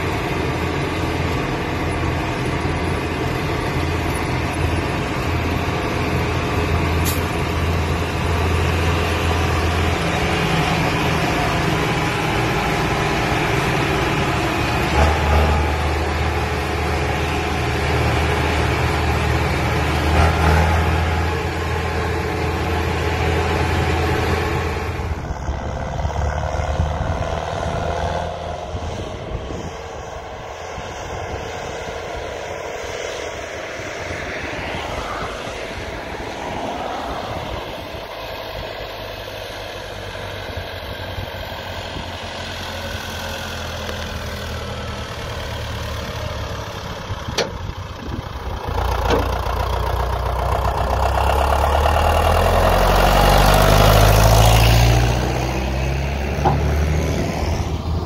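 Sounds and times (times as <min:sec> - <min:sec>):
diesel tractor engine labouring: 0:00.0 - 0:58.0
car passing: 0:07.8 - 0:43.6, 0:48.8 - 0:58.0.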